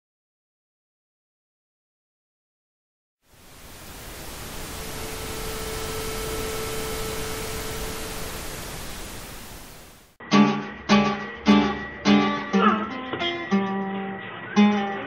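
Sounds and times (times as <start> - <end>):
rushing static hiss: 3.2 - 10.2
faint held tone: 4.2 - 9.4
strummed acoustic guitar: 10.2 - 15.0.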